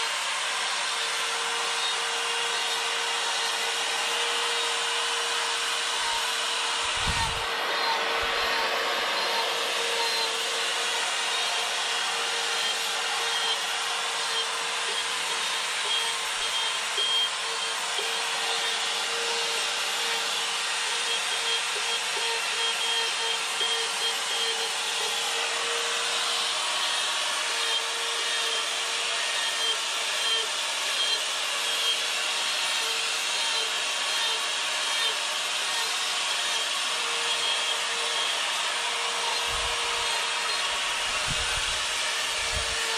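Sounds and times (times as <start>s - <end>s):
burr grinding wood: 0.0s - 42.9s
rotary tool motor whine: 0.0s - 42.9s.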